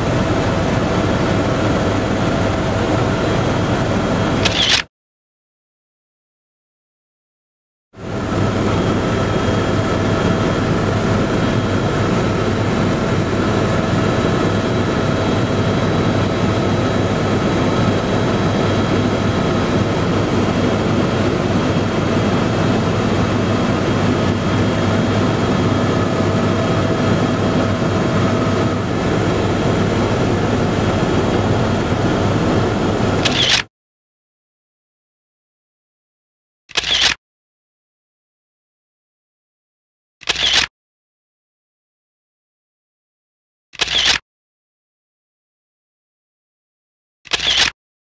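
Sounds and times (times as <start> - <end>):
helicopter engine and rotor drone: 0.0 - 4.9, 8.0 - 33.7, 36.8 - 37.2, 40.3 - 40.7, 43.8 - 44.2, 47.3 - 47.7.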